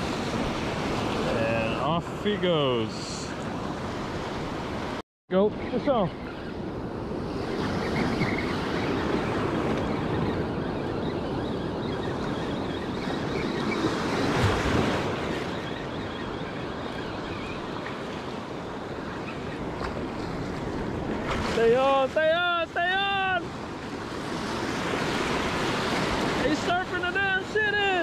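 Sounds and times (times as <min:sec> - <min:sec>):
ocean surf washing on beach: 0:00.0 - 0:05.0, 0:16.4 - 0:28.0.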